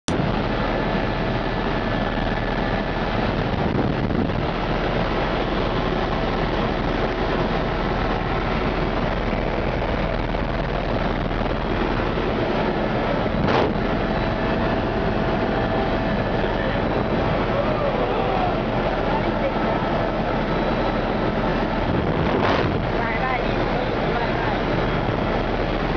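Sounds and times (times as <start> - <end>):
helicopter engine and rotor noise: 0.1 - 25.9.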